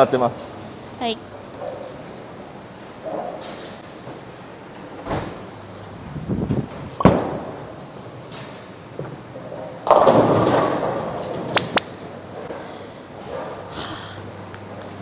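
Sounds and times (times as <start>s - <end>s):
bowling ball thudding onto lane: 7.0s - 7.6s
bowling pins crashing: 7.0s - 7.8s, 9.8s - 11.8s.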